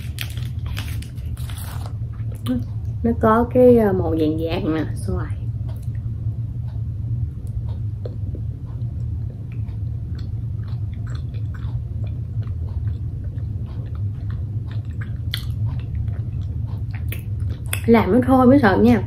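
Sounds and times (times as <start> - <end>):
person chewing: 0.0 - 2.9, 7.4 - 17.9
steady low hum: 0.0 - 19.0
mouth clicks and smacks: 7.4 - 17.9.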